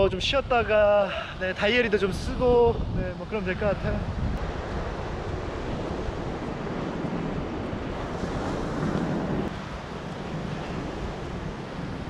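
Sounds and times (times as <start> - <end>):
wind rumbling on microphone: 0.0 - 12.0
surf breaking on beach: 3.2 - 12.0.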